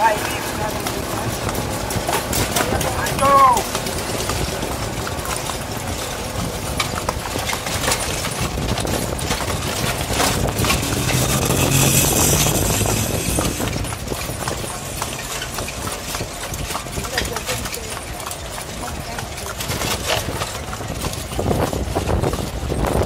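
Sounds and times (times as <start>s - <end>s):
horse hooves clip-clopping on pavement: 0.0s - 23.0s
vehicle engine passing: 8.9s - 18.0s.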